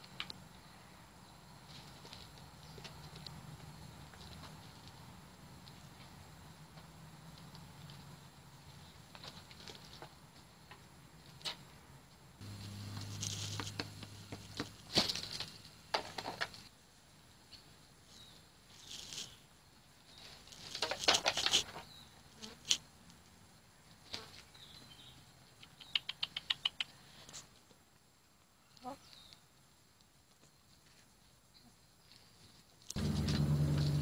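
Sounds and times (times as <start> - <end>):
birds pecking grain: 0.0 - 11.8, 12.4 - 16.7, 17.5 - 23.3, 32.0 - 34.0
low hum: 12.4 - 14.3, 33.0 - 34.0
scratching in dry leaves: 12.4 - 15.6, 18.7 - 19.4.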